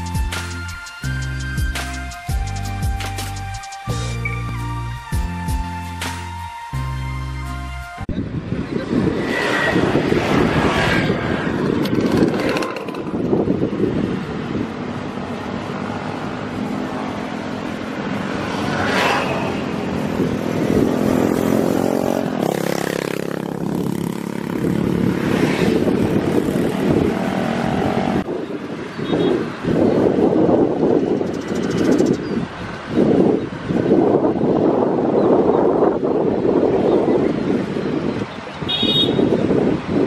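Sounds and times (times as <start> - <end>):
road traffic passing: 0.0 - 40.0
engine hum: 5.8 - 28.8.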